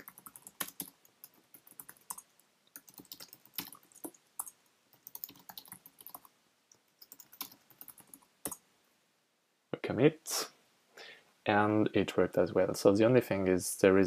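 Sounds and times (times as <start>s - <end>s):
typing on computer keyboard: 0.0s - 6.3s, 6.9s - 8.6s.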